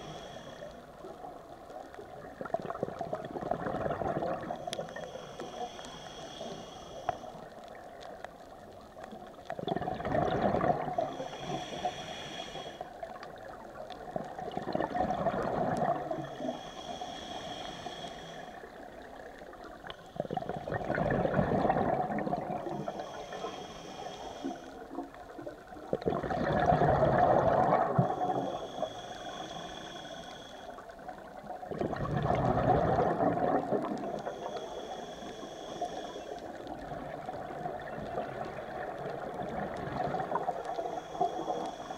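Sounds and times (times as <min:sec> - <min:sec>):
regulator inhale hissing: 0:00.0 - 0:01.9, 0:04.4 - 0:08.2, 0:10.8 - 0:13.5, 0:16.0 - 0:20.7, 0:22.6 - 0:25.3, 0:27.6 - 0:31.6, 0:33.1 - 0:36.9, 0:40.1 - 0:41.9
exhaled bubbles burbling: 0:02.1 - 0:04.6, 0:09.6 - 0:11.1, 0:14.0 - 0:16.2, 0:20.2 - 0:22.8, 0:25.7 - 0:28.6, 0:31.6 - 0:34.3, 0:36.7 - 0:40.7.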